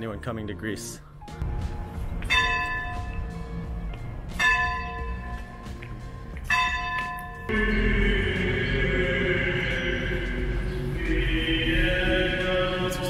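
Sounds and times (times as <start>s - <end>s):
music: 0.0s - 13.0s
church bell ringing: 2.2s - 3.3s, 4.4s - 5.7s, 6.5s - 8.0s.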